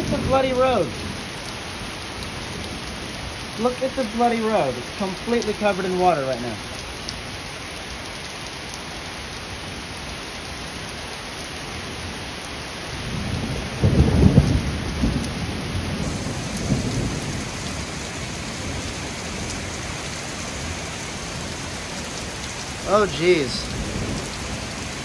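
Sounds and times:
heavy rain falling: 0:00.0 - 0:25.0
thunder rumble: 0:13.1 - 0:19.8, 0:22.6 - 0:25.0.

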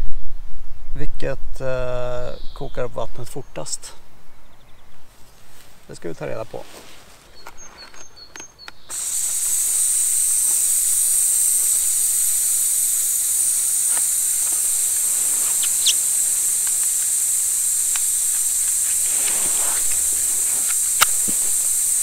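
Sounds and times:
faint ticks: 0:08.4 - 0:22.0
gas burner hissing: 0:08.9 - 0:22.0.

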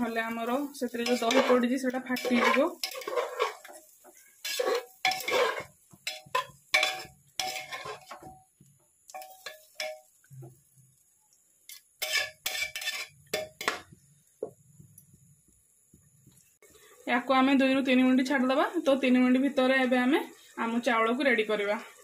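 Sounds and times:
tongs clinking in metal pot: 0:00.3 - 0:03.8, 0:04.4 - 0:08.3, 0:09.1 - 0:10.1
spatula scraping pot: 0:00.3 - 0:08.3, 0:11.7 - 0:13.9.

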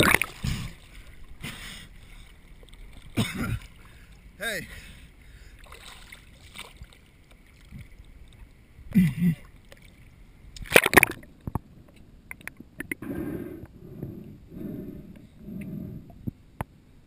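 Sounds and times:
water sloshing and splashing: 0:00.0 - 0:08.8, 0:09.4 - 0:11.7.

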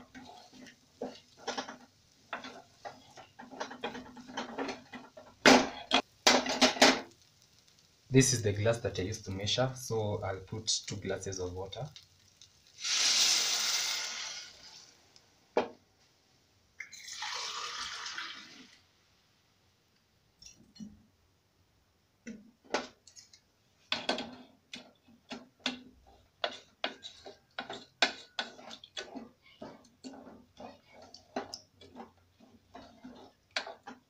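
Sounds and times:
water hissing into hot pot: 0:12.4 - 0:15.1, 0:16.8 - 0:18.9
metal spoon scraping a pot: 0:24.2 - 0:34.0.

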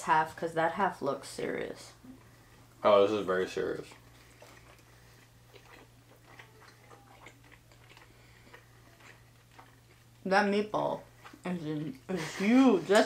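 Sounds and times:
steady low hum: 0:00.0 - 0:13.0
people chewing: 0:02.0 - 0:10.2, 0:11.0 - 0:13.0.

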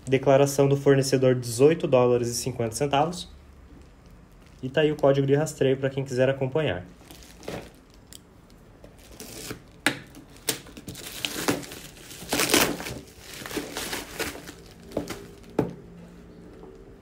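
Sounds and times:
plastic mailer crinkling and tearing: 0:07.0 - 0:08.1, 0:08.8 - 0:15.6.

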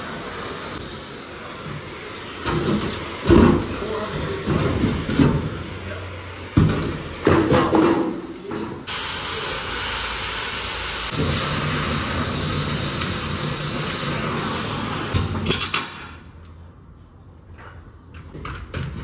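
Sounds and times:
cutting torch hissing: 0:00.0 - 0:07.6, 0:08.2 - 0:15.4.

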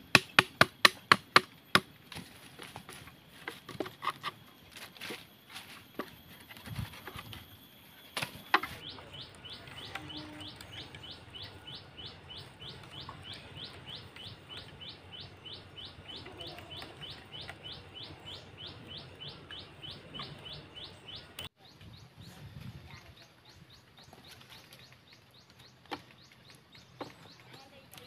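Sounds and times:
bird chirping: 0:05.9 - 0:28.0.

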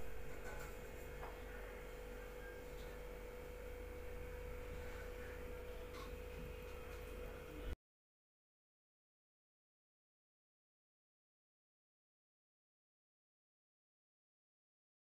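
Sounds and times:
low electrical hum: 0:00.0 - 0:07.8
steady higher tone: 0:00.0 - 0:07.8.

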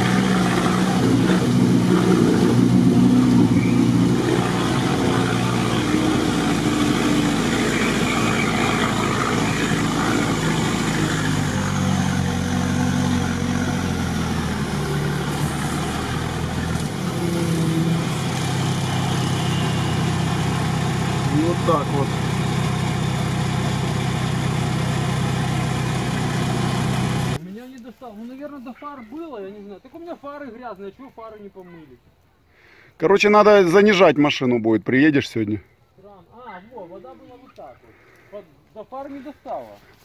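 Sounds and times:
vehicle engine under load: 0:00.0 - 0:27.4.

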